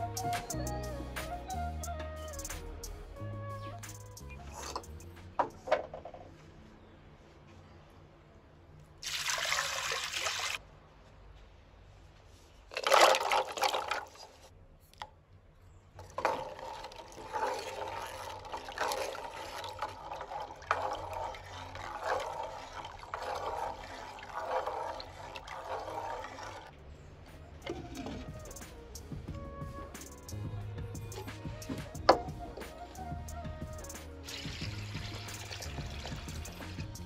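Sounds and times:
water pouring into clay pot: 9.0 - 10.6, 16.0 - 26.7, 31.6 - 37.0
water splash: 9.0 - 10.6
water sloshing from stirring: 16.0 - 26.8, 27.6 - 28.6, 33.8 - 37.0.

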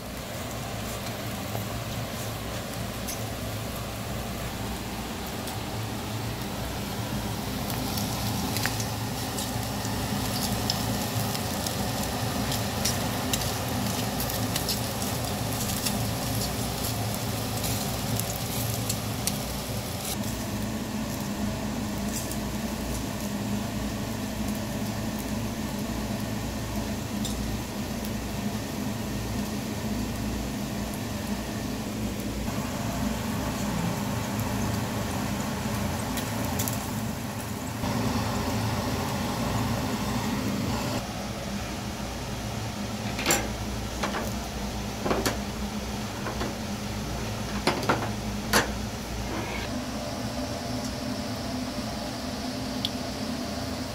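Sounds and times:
food sizzling on a grill: 0.0 - 51.2
crackles and pops: 7.6 - 19.4.

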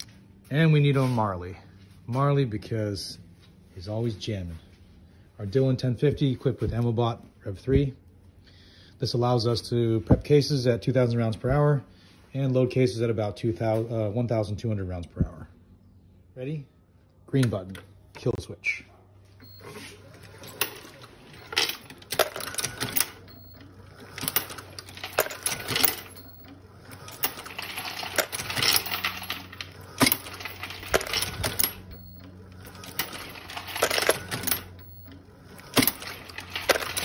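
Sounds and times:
machine low hum: 0.0 - 37.0
metallic clicks and clinks: 20.3 - 37.0.

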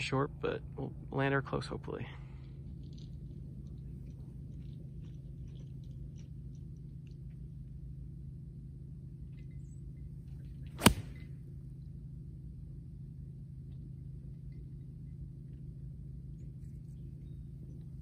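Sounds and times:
low hum: 0.0 - 18.0
golf club striking ball: 10.7 - 11.4.

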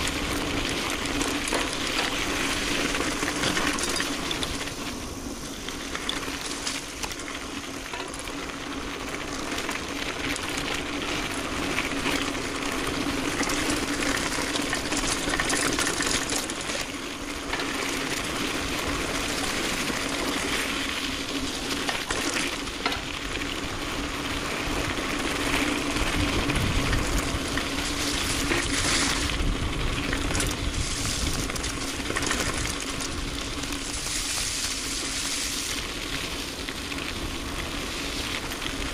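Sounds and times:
bike rattles and clicks: 0.0 - 38.9
tyre and wind rush: 23.7 - 36.5.

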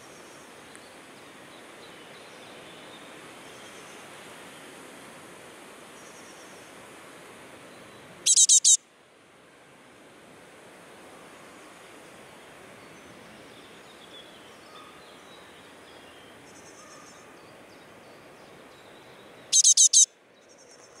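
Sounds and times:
close high-pitched bird calls: 8.3 - 8.8, 19.5 - 20.1
faint bird calls: 8.3 - 8.8, 19.5 - 21.0.

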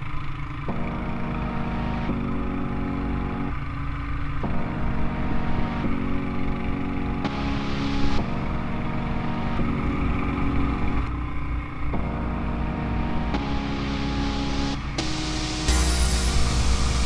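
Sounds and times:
atv engine running: 0.0 - 1.2, 3.3 - 5.0, 9.6 - 12.1.

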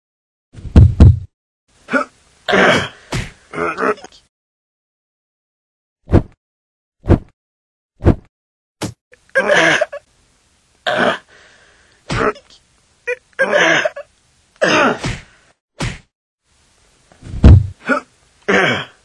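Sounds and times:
person grunting: 1.9 - 4.1, 14.6 - 15.3, 17.8 - 19.0.

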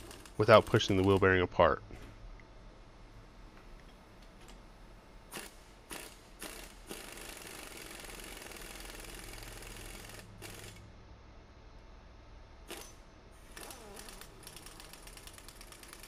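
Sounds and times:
pneumatic impact wrench hammering: 0.0 - 1.1, 5.3 - 10.8, 12.7 - 16.0.

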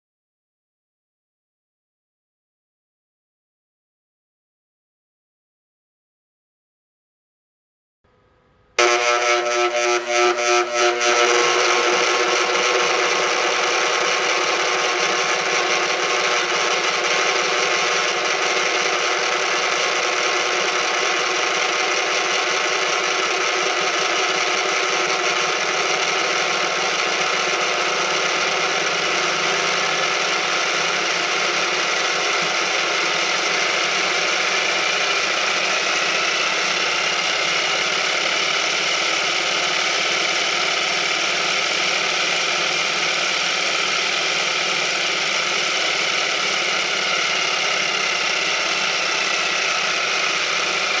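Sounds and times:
faint whine: 8.1 - 35.5
shake table running: 8.8 - 36.7.

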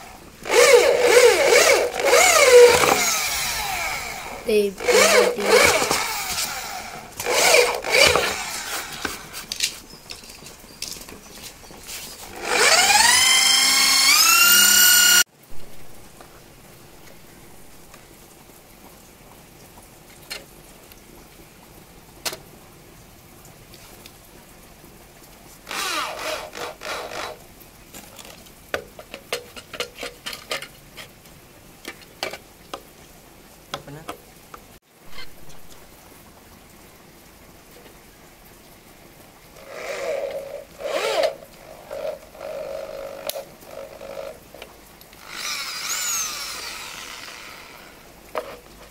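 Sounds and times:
electric drill boring into wood: 0.4 - 9.4, 12.3 - 15.3, 25.7 - 27.4, 39.6 - 44.4, 45.2 - 48.1.

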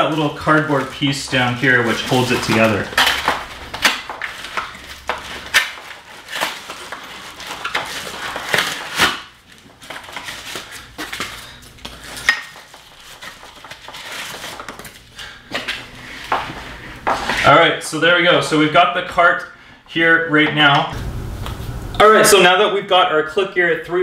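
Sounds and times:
plastic and cardboard rustling: 0.0 - 17.6.

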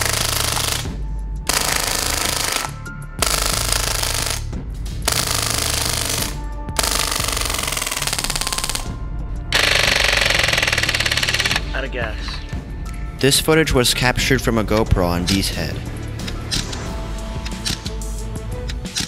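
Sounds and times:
bb gun firing bursts: 0.0 - 0.9, 1.5 - 4.5, 5.1 - 8.9, 9.6 - 11.6
electronic music with steady beat: 0.0 - 19.0.

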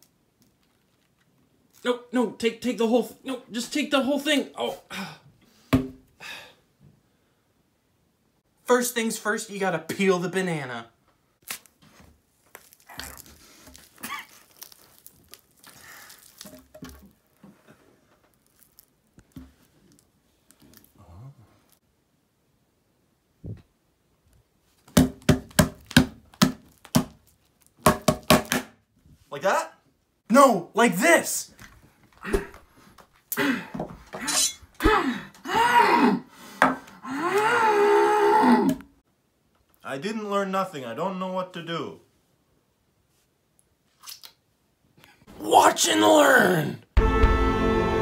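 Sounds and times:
banana tearing and squishing: 11.4 - 17.4, 18.2 - 21.8, 25.4 - 27.8.

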